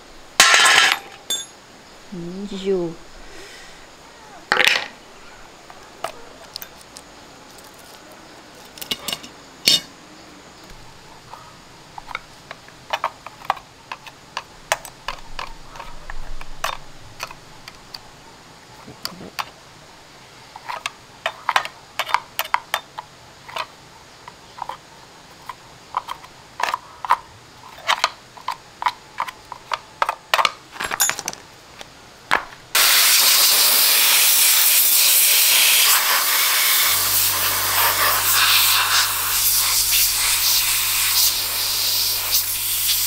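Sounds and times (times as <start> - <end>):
metal tools clinking: 0.4 - 1.6, 7.6 - 9.9, 30.4 - 31.4.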